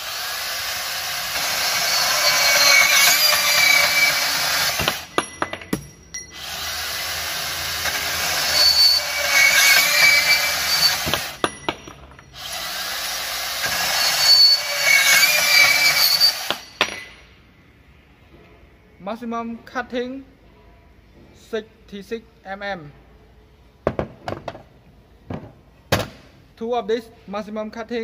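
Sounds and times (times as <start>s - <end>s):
band saw cutting steel pipe: 0.0s - 5.2s, 6.4s - 11.5s, 12.4s - 16.8s
blade squealing on metal: 1.4s - 5.2s, 8.0s - 11.5s, 13.7s - 16.8s.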